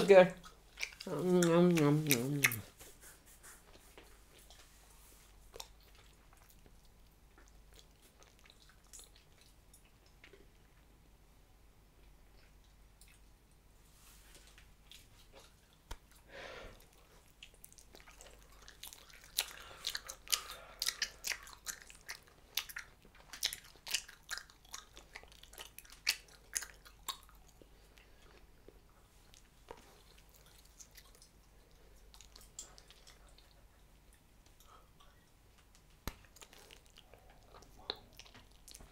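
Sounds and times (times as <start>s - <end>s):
gum chewing smacks: 0.4s - 4.7s, 5.5s - 10.5s, 14.9s - 38.9s.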